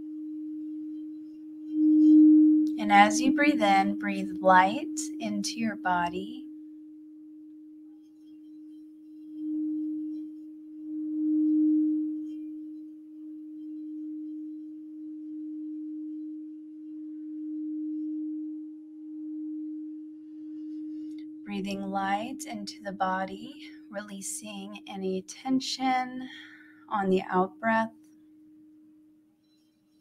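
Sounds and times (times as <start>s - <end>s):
singing bowl ringing: 0.0s - 22.8s.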